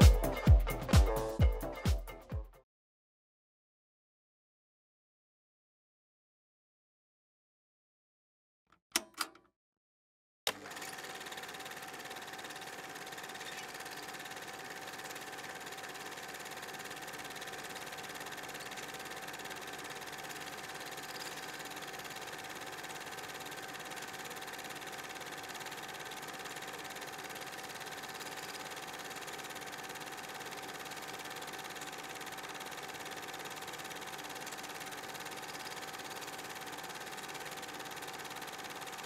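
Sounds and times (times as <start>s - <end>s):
mechanical hum with high tone: 10.6s - 39.0s.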